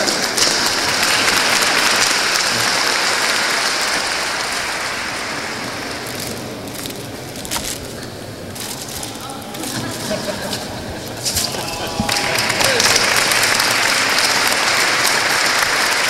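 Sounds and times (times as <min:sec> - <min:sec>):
large audience applauding: 0:00.0 - 0:07.0, 0:11.3 - 0:16.0.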